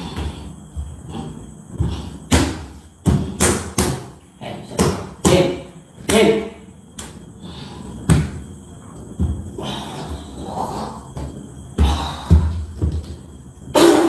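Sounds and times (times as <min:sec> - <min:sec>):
loud thuds and slaps: 0:01.8 - 0:06.3, 0:08.1 - 0:08.4.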